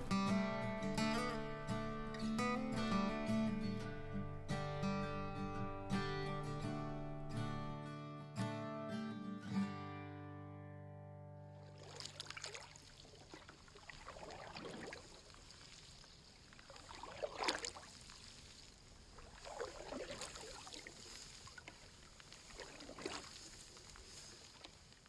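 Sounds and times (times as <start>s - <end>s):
canoe paddle splashing in water: 11.6s - 25.0s.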